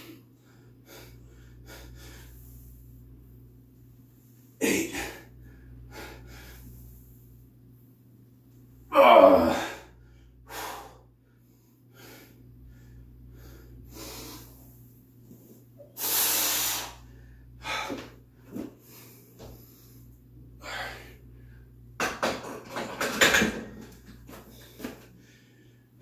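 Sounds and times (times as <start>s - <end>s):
man breathing hard: 0.0s - 2.9s, 4.9s - 7.2s, 9.5s - 21.8s, 24.4s - 26.0s
man grunting: 4.6s - 5.3s, 8.9s - 9.9s.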